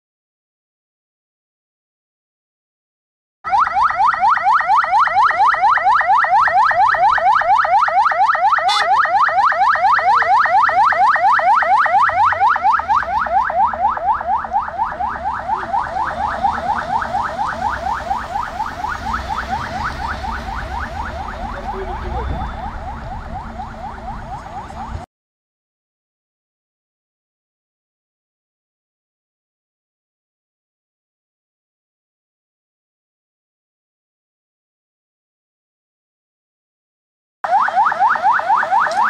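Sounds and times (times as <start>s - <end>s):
police siren in fast yelp: 3.5s - 25.1s, 37.4s - 39.0s.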